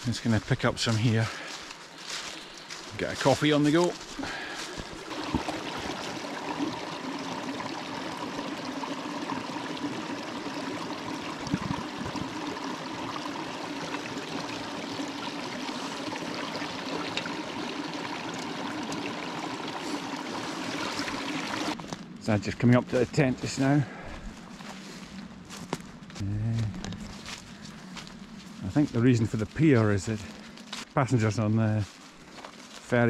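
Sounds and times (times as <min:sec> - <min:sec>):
stream trickling over stones: 0:00.1 - 0:25.0, 0:26.8 - 0:33.0
water bottle filling: 0:04.1 - 0:21.8.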